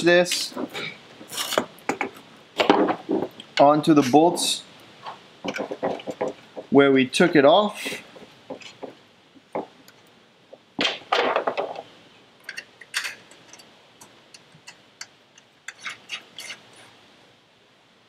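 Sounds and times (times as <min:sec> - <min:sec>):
metal hardware clicks and clinks: 0:12.4 - 0:13.7
metal scrape: 0:15.7 - 0:17.0.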